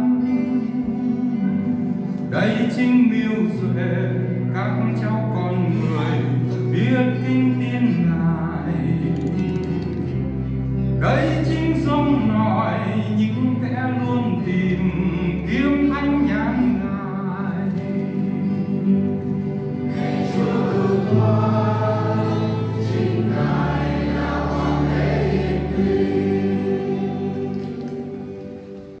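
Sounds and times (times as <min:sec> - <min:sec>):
held low accompaniment notes: 0:00.0 - 0:29.0
church choir singing: 0:17.5 - 0:28.9.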